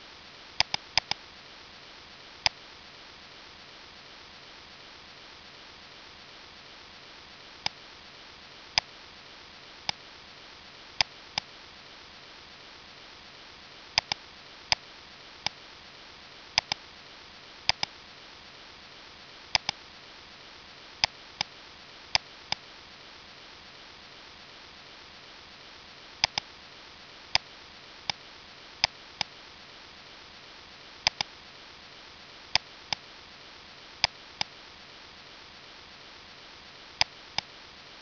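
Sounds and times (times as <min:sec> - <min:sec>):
steady background hiss: 0:00.0 - 0:38.0
computer mouse clicking: 0:00.6 - 0:01.2, 0:14.0 - 0:14.2, 0:16.6 - 0:16.8, 0:17.7 - 0:17.9, 0:19.5 - 0:19.8, 0:26.2 - 0:26.5, 0:31.0 - 0:31.3.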